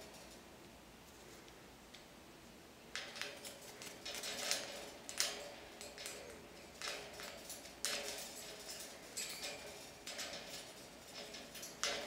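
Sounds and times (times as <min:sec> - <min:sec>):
bird scraping on cage bars: 0:03.2 - 0:12.0.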